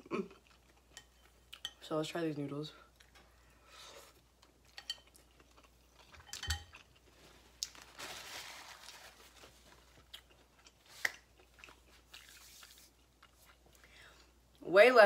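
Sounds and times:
faint eating sounds: 0.0s - 14.6s
paper napkin rustling: 7.3s - 10.0s.

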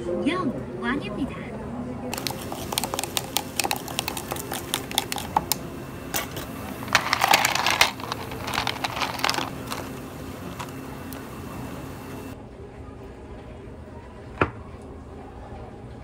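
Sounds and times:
drink being stirred: 2.1s - 12.4s
ice cubes clattering into mug: 2.2s - 5.6s, 6.2s - 10.8s.

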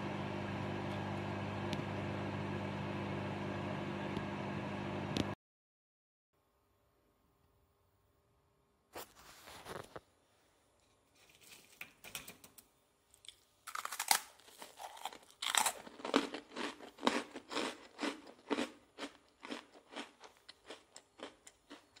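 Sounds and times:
crunchy chewing: 13.2s - 22.0s.

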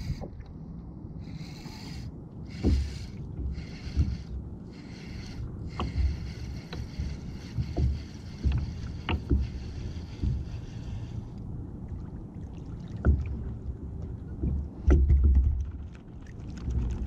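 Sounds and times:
wind on microphone: 0.0s - 0.5s
waves slapping against kayak hull: 1.4s - 11.4s, 12.2s - 17.0s.

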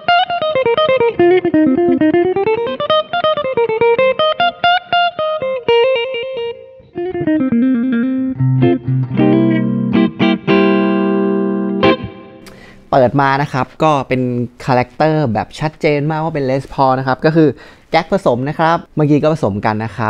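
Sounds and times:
clean electric guitar: 0.0s - 12.9s.

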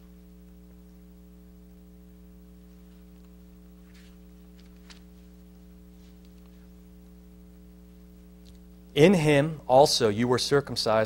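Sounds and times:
electrical mains hum: 0.0s - 11.0s
pages rustling: 2.8s - 6.8s
page turning click: 3.9s - 5.1s.

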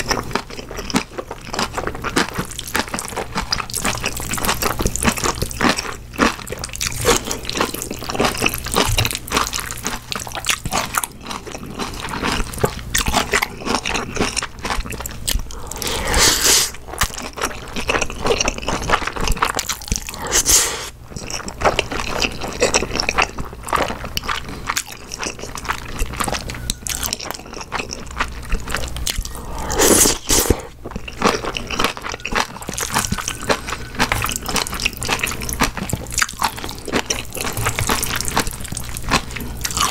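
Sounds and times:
wet chewing and mouth clicks: 0.0s - 20.5s, 21.1s - 39.9s
slurping noodles: 15.5s - 16.8s, 20.1s - 20.9s, 29.1s - 30.7s.

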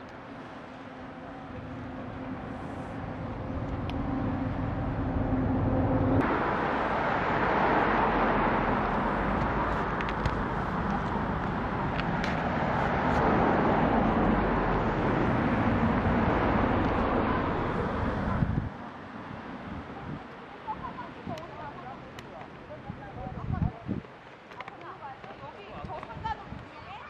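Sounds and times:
road traffic noise: 0.0s - 27.0s
low hum: 0.3s - 9.7s
even rushing noise: 0.6s - 19.8s.

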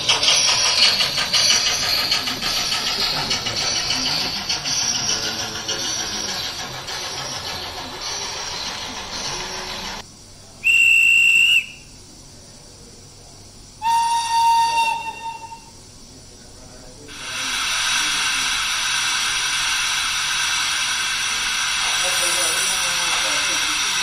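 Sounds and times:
loud hiss of steam: 0.0s - 10.0s, 10.6s - 11.9s, 17.1s - 24.0s
longer deeper steam whistle: 10.6s - 11.9s, 13.8s - 15.8s
short high whistle blast: 10.6s - 11.9s, 13.8s - 15.8s.

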